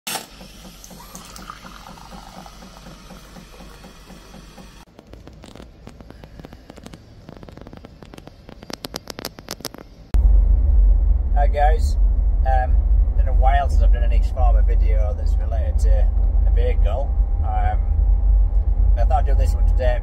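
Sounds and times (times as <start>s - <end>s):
coffee machine frothing milk: 0.1s - 4.9s
sharp clicks: 4.8s - 10.0s.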